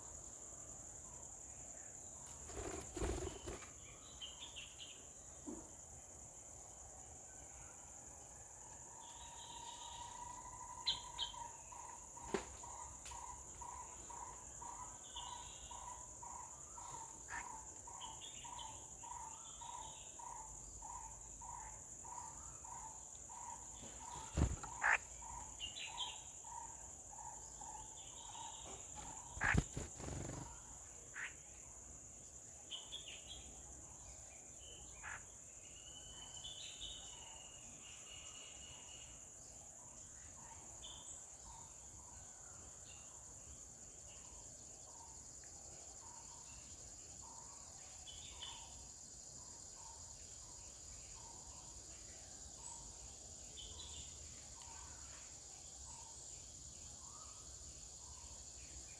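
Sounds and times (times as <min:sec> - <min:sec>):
insects droning: 0:00.0 - 0:58.9
birds chirping: 0:22.1 - 0:26.2, 0:27.8 - 0:31.3.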